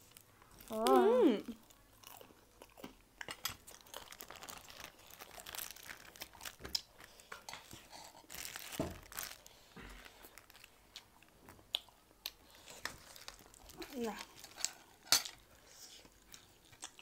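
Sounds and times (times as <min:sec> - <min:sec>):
quiet eating sounds: 0:00.0 - 0:17.0
plastic bag crinkling: 0:03.7 - 0:10.8, 0:12.6 - 0:15.4.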